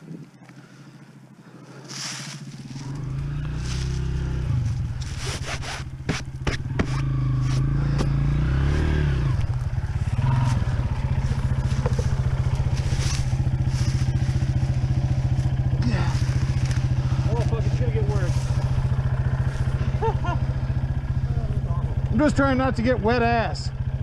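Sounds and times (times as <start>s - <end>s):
motorcycle engine running: 0.6s - 24.0s
sharp engine knocks: 5.9s - 9.8s.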